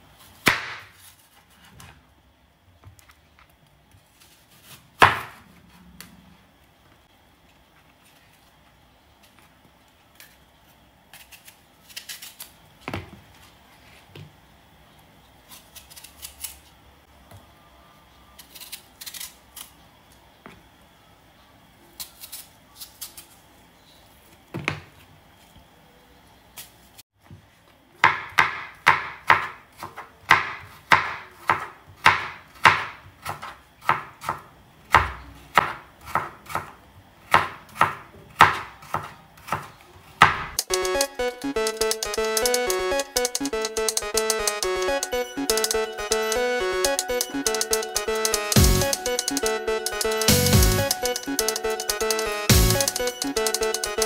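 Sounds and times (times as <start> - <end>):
knife chopping apple: 28.0 - 40.5.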